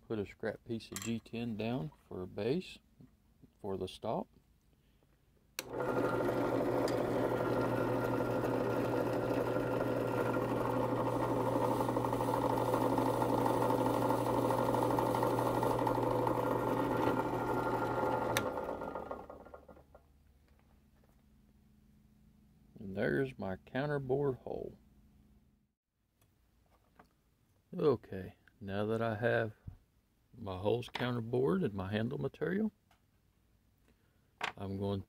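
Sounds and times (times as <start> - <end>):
drill press running: 5.6 - 20.0.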